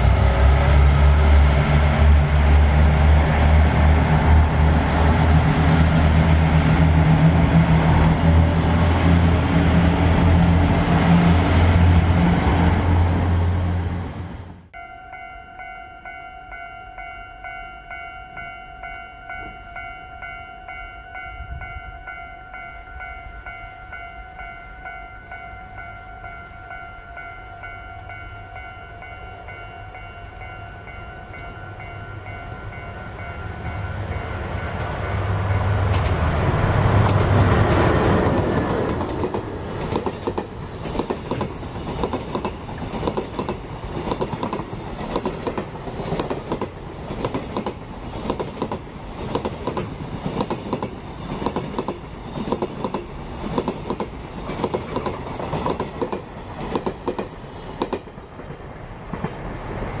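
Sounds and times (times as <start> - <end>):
diesel locomotive engine rumble: 0.0 - 60.0.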